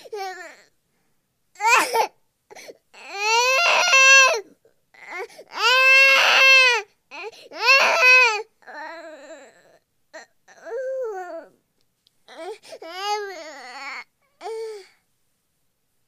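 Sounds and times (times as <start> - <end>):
baby crying: 3.0 - 11.6, 12.3 - 14.9.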